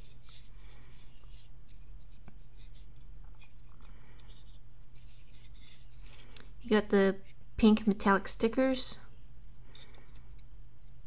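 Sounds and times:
plastic model clicking and rubbing: 0:00.0 - 0:06.5
steady low hum: 0:00.0 - 0:11.0.

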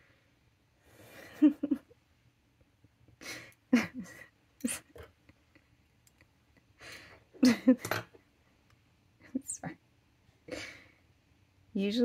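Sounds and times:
woman breathing: 0:00.0 - 0:01.4, 0:03.2 - 0:04.3, 0:06.8 - 0:07.3, 0:10.5 - 0:11.1.

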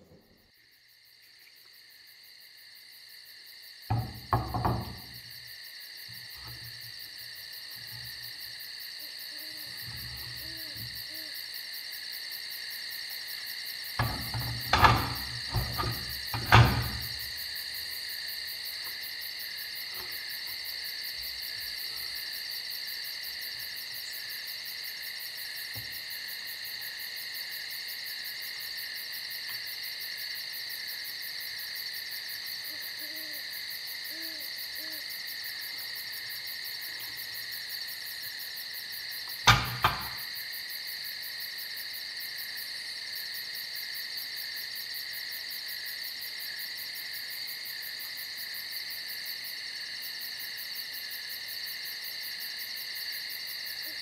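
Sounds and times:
high-pitched insect chorus: 0:00.1 - 0:54.0
faint low hoots: 0:09.0 - 0:11.4, 0:32.7 - 0:33.5, 0:34.1 - 0:35.1.

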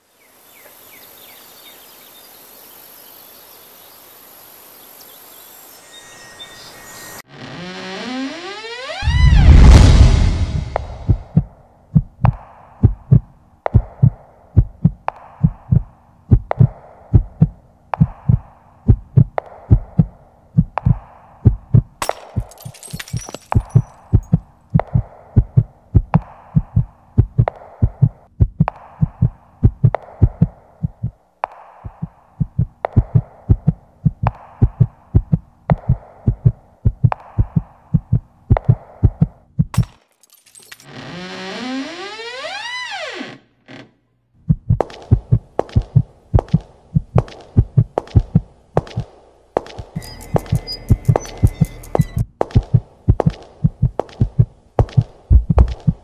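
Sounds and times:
heartbeat thumps: 0:09.6 - 0:22.0, 0:24.1 - 0:31.2, 0:31.8 - 0:39.7, 0:44.4 - 0:49.1, 0:50.4 - 0:56.0.

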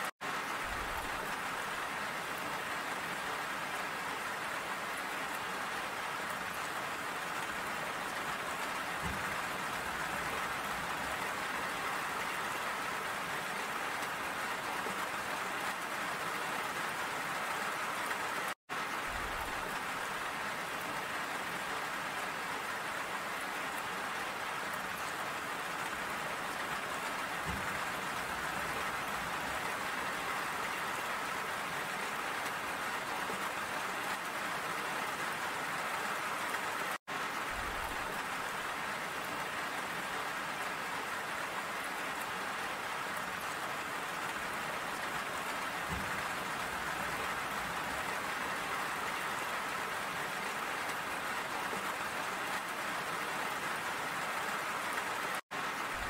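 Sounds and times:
rain on hard surfaces: 0:00.0 - 0:56.0.

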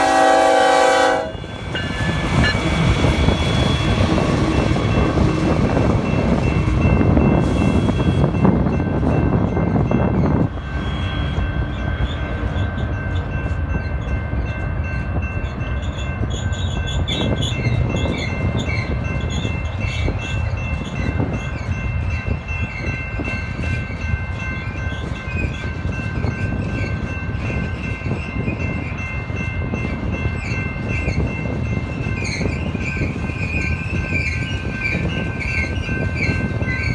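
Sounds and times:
freight train rumbling past: 0:00.0 - 0:36.9
wind buffeting microphone: 0:01.2 - 0:36.9.

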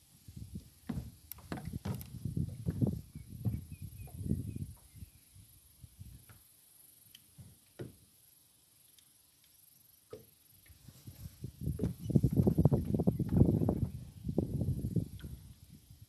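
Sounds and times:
knocking on plastic boat: 0:00.9 - 0:04.2.

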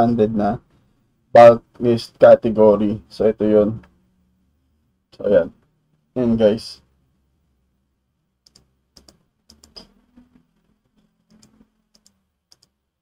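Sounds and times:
faint mouse clicks: 0:11.3 - 0:12.8.

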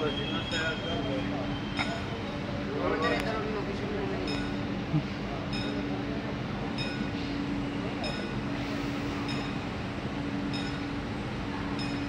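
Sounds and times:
train electric hum: 0:00.0 - 0:12.0.

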